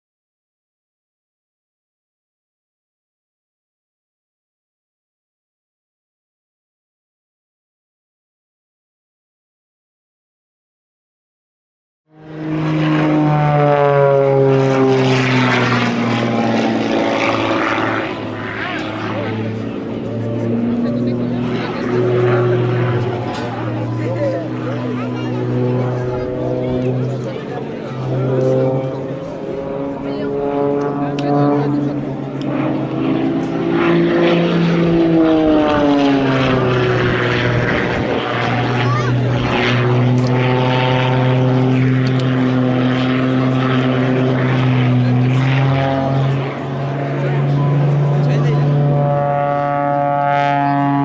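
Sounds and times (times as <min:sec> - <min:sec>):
plane engine and propeller: 0:12.1 - 0:51.0.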